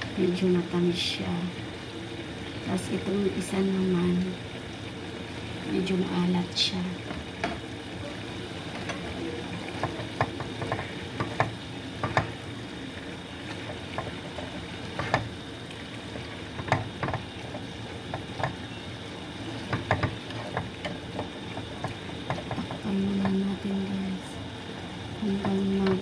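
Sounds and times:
chicken sizzling in frying pan: 0.0 - 26.0
utensil scraping pan: 19.6 - 22.8.

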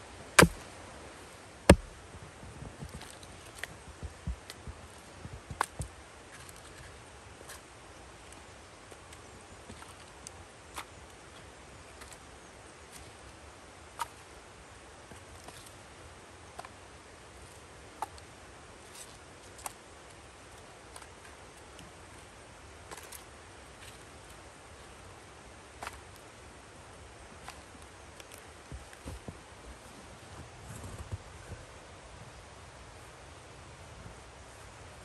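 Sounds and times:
faint steady hiss: 0.0 - 35.0
firewood pieces knocking together: 0.4 - 0.6, 1.7 - 1.9.

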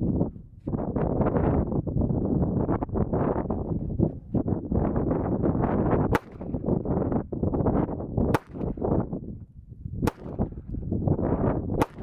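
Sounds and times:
wind buffeting microphone: 0.0 - 12.0
pistol shots: 6.1 - 6.6, 8.3 - 8.8, 10.0 - 10.5, 11.8 - 12.0.

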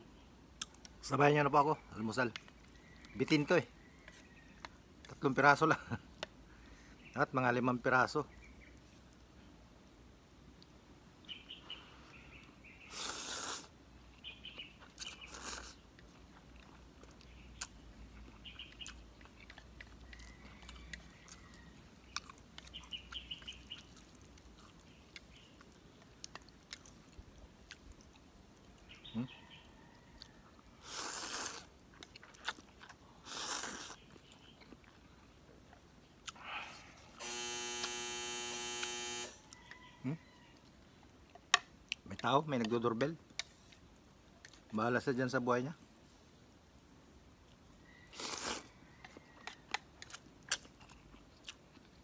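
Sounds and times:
person slurping noodles: 12.9 - 13.7, 30.8 - 31.7, 33.2 - 34.0
wet chewing and mouth smacks: 14.2 - 29.0, 30.1 - 36.4, 47.4 - 52.0.

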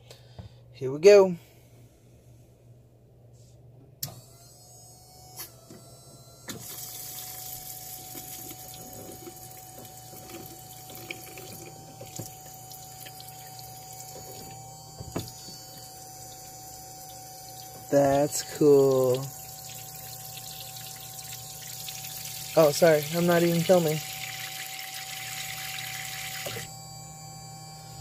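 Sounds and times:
water pump whining: 4.0 - 28.0
water spraying into sink: 17.4 - 26.7.

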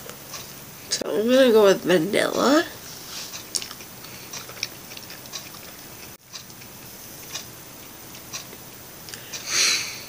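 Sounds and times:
background hiss: 6.8 - 10.0.

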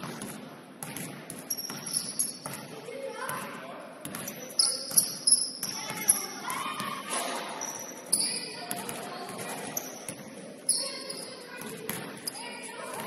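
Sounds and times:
basketball bouncing on hardwood floor: 0.0 - 2.7
sneakers squeaking: 0.0 - 13.0.

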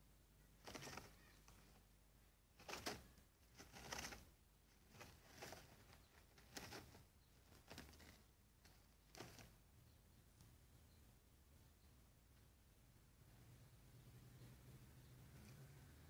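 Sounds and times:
rustling in wood shavings: 2.6 - 9.5.

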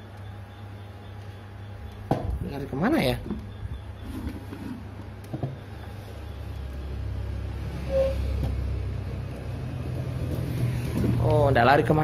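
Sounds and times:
vehicle engine rumble: 3.4 - 12.0.

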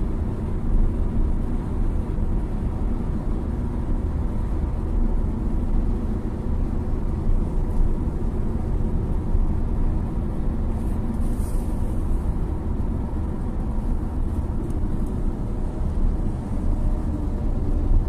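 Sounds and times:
car road rumble from inside: 0.0 - 18.0.

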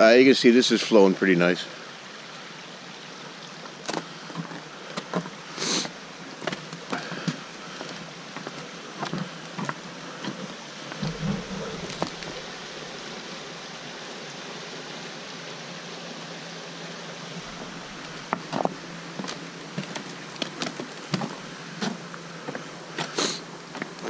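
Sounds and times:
stream running fast: 0.0 - 24.0
footsteps on wooden planks: 6.4 - 12.6, 17.4 - 24.0.

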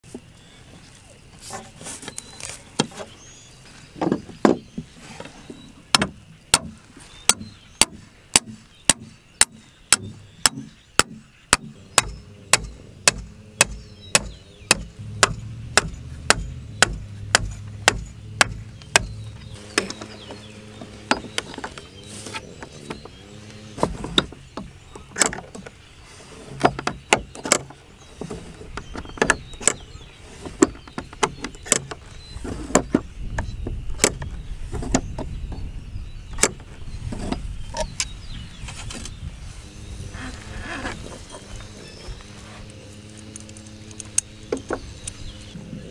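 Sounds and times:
hammer striking steel rod: 8.4 - 19.2.

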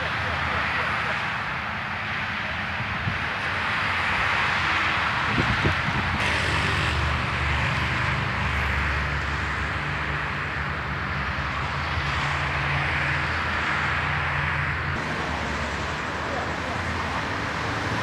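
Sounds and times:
road traffic noise: 0.0 - 18.0
engine humming: 9.2 - 18.0.

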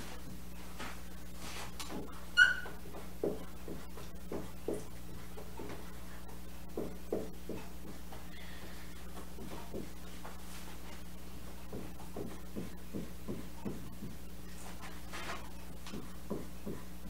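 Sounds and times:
marker tip squeak: 2.4 - 2.8.

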